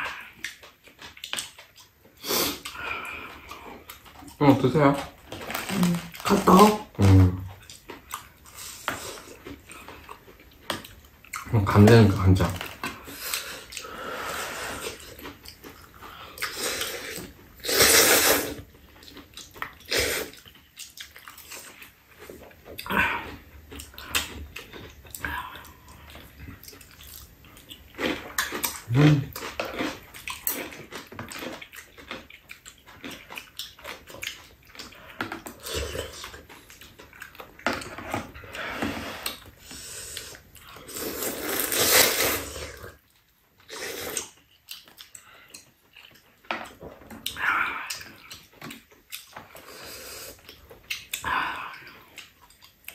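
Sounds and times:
chewing: 0.0s - 52.9s
people slurping noodles: 13.0s - 15.3s, 16.4s - 18.6s, 37.8s - 43.0s, 43.7s - 44.4s.

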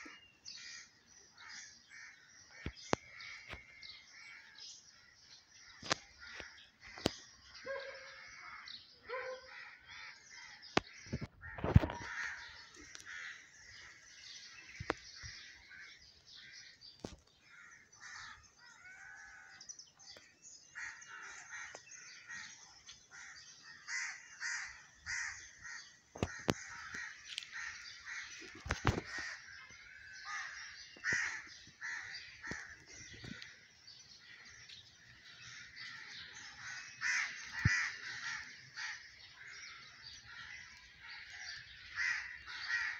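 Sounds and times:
birds cawing: 0.0s - 42.9s.

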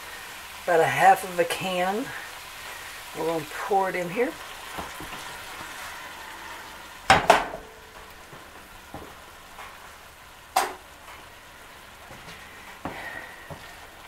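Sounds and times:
chicken sizzling in a pan: 0.0s - 14.0s
sharp knocks: 7.1s - 7.7s.

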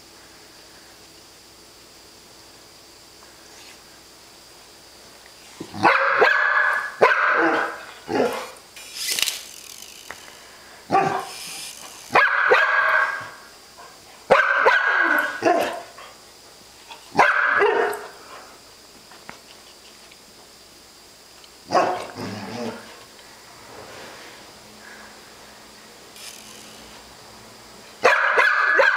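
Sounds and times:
dog barking: 5.8s - 8.6s, 10.9s - 11.3s, 12.1s - 13.4s, 14.3s - 15.9s, 17.2s - 18.1s, 21.7s - 22.2s, 28.0s - 28.9s.

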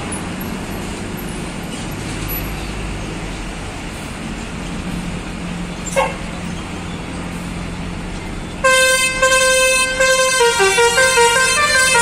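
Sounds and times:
coach engine humming: 0.0s - 12.0s
musical multi-tone bus horn: 8.6s - 12.0s.

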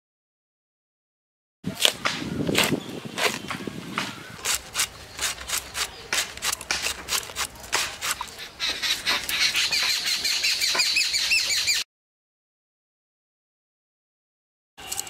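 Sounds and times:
cabbage being sliced: 1.7s - 9.3s
bird calling and chirping: 2.2s - 11.8s.

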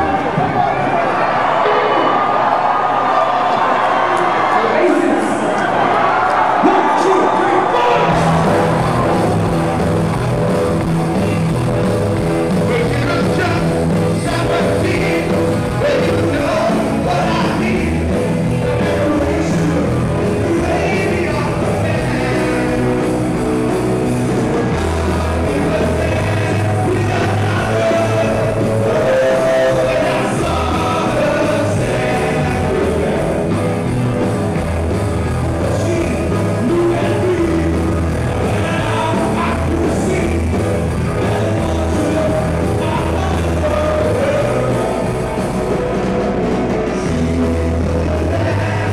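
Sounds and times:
rock band playing: 6.5s - 48.9s
person singing: 12.6s - 34.0s, 35.6s - 48.9s.

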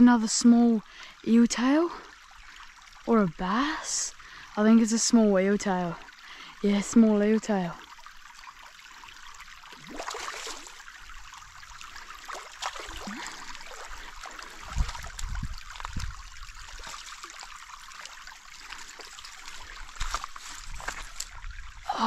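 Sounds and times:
creek water trickling: 0.0s - 22.0s
fish splashing in water: 9.7s - 11.0s, 11.8s - 21.3s.

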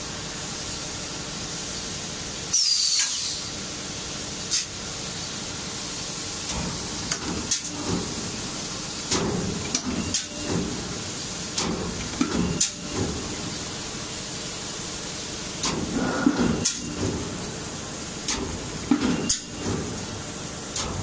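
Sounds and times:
brief hisses: 2.5s - 3.6s.

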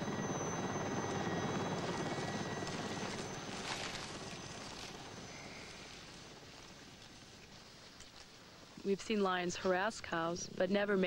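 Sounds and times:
engine fluttering pulse: 0.0s - 7.4s.

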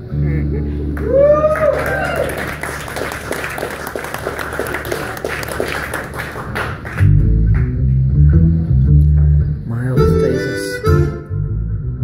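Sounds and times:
deep sustained low notes: 0.0s - 1.2s, 7.0s - 12.0s
blues guitar picked with percussive taps: 7.0s - 11.1s.

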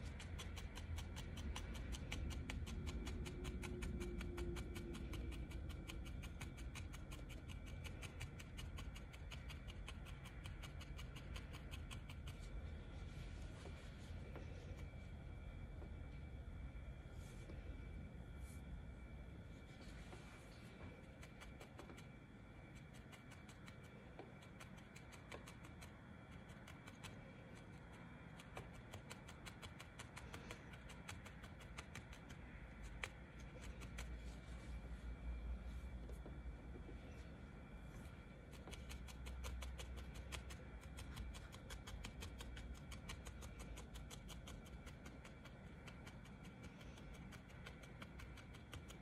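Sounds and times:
felting needle ticking: 0.0s - 12.7s, 20.9s - 34.4s, 38.0s - 49.0s.

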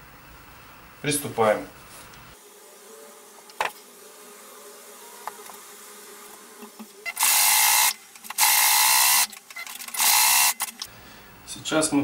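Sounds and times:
sewing machine buzzing: 7.0s - 10.9s.

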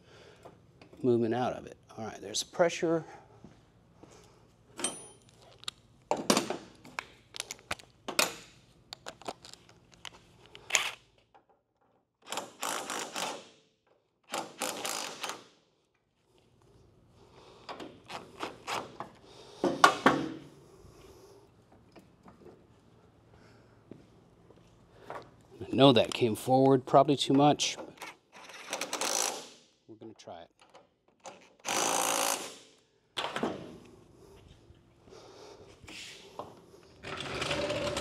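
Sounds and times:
steady power tool noise: 31.6s - 32.7s.

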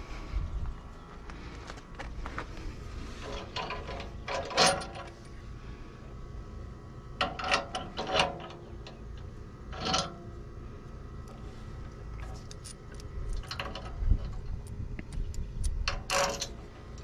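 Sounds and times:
metal clinks and rattles: 3.2s - 5.3s, 12.2s - 14.8s, 15.8s - 16.6s.

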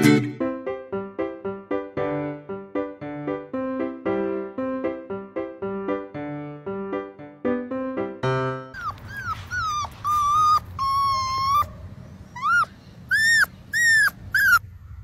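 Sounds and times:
piano-like background music: 0.0s - 9.3s
puppy whining: 8.7s - 14.7s.

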